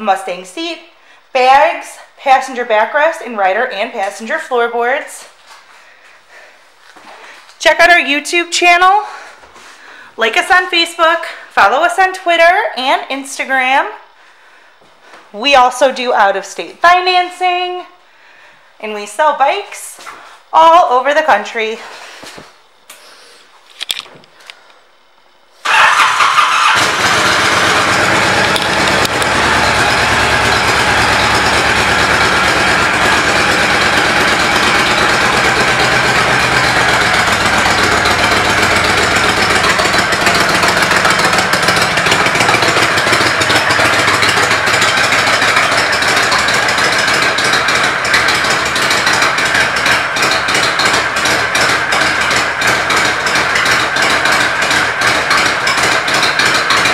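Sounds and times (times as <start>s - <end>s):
motorcycle engine starting and idling: 25.6s - 56.9s.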